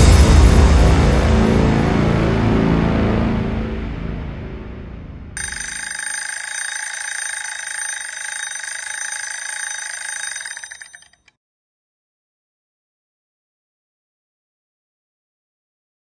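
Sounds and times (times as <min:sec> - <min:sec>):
kitchen timer bell ringing: 0:05.4 - 0:11.3.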